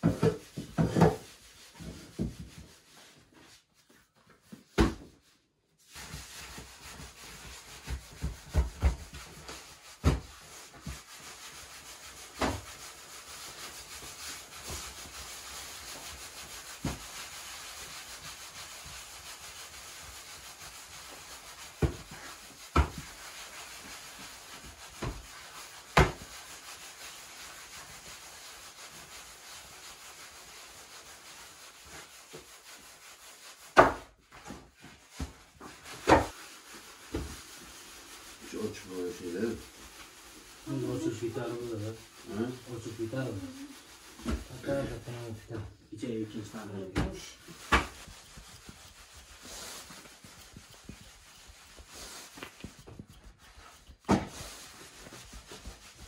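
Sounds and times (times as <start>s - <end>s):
dough knocking on wooden board: 0.0s - 1.3s, 7.9s - 9.2s, 33.8s - 34.1s
hands rubbing dough: 0.0s - 56.0s.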